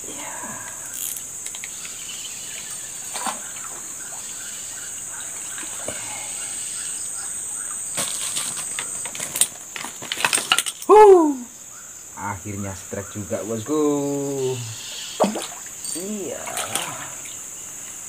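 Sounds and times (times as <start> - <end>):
high insect buzz: 0.0 - 10.0, 10.9 - 18.0
water splashing: 2.5 - 6.4, 14.0 - 17.6
fish thrashing in water: 15.2 - 17.4.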